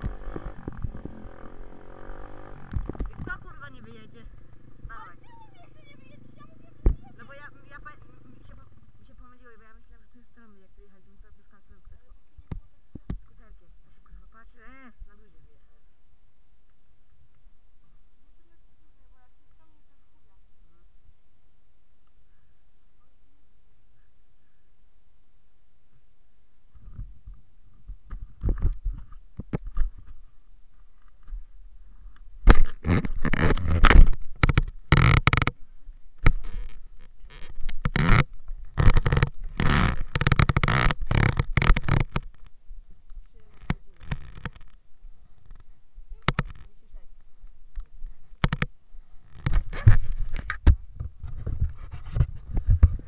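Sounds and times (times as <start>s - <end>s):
rustling and low knocks: 0.0s - 6.1s, 26.7s - 53.0s
camera handling noise: 32.2s - 35.6s.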